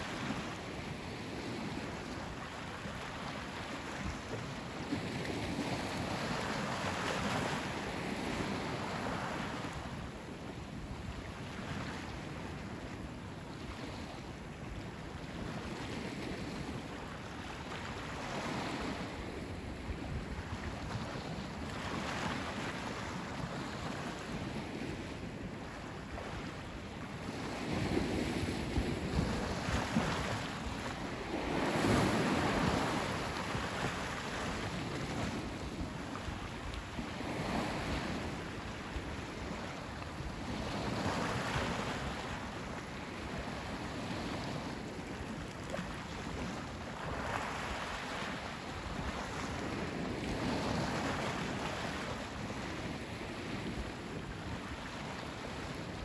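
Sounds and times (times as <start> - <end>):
ocean waves breaking: 15.7 - 56.0.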